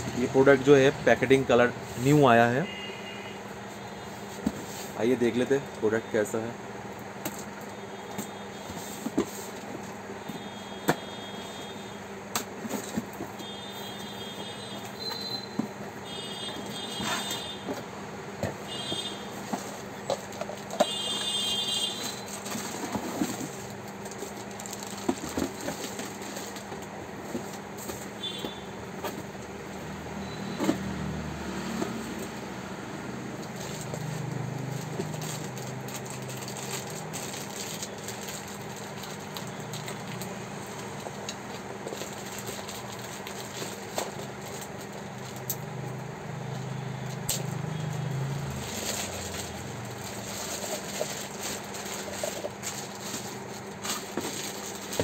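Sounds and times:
steady background hum: 0.0 - 30.8, 31.8 - 55.0
plastic wrapping crackling: 19.7 - 27.6, 33.4 - 45.6, 47.2 - 55.0.

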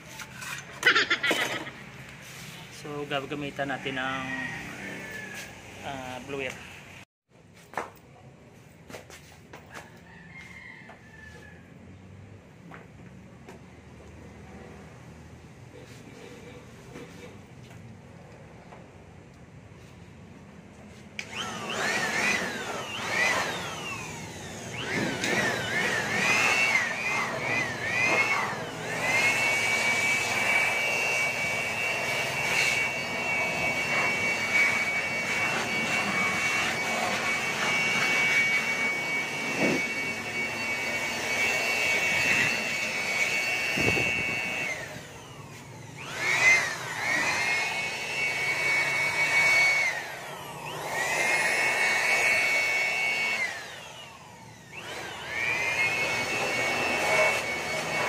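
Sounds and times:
handheld blower whining: 0.0 - 6.9, 21.1 - 58.0.

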